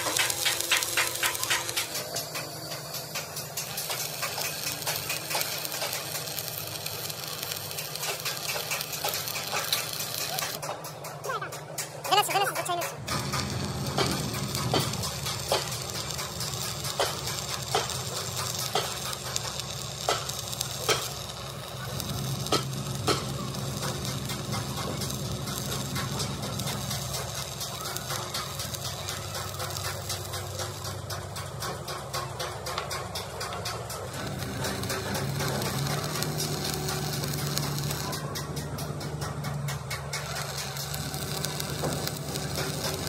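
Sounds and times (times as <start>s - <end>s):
electric arc welding crackling: 0.0s - 10.6s, 12.1s - 43.0s
low machine hum: 9.5s - 43.0s.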